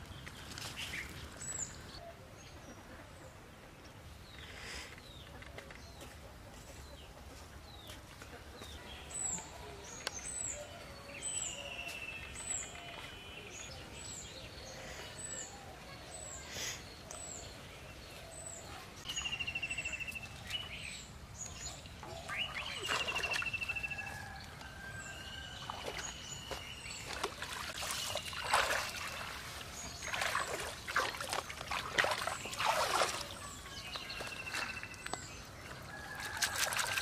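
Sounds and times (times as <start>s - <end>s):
water splashing and trickling: 20.1s - 37.0s.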